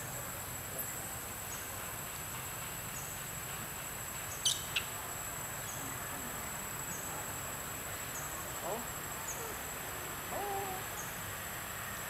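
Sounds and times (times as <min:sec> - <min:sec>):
short insect chirp: 0:04.0 - 0:12.0.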